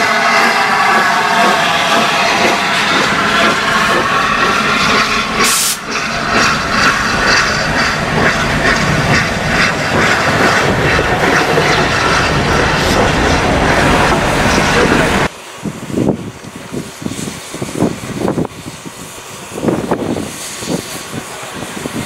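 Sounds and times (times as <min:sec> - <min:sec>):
locomotive wheels clanking on rails: 0:00.0 - 0:15.3
steam hissing: 0:00.0 - 0:22.0.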